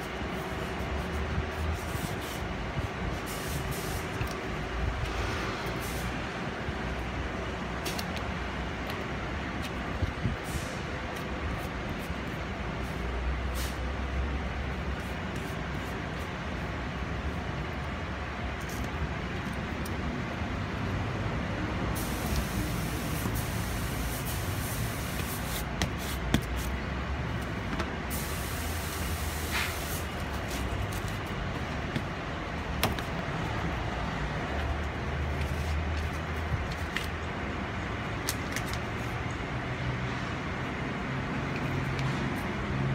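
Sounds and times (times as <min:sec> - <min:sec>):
rustling of tape and seat cover: 0:27.4 - 0:32.2, 0:35.3 - 0:37.2.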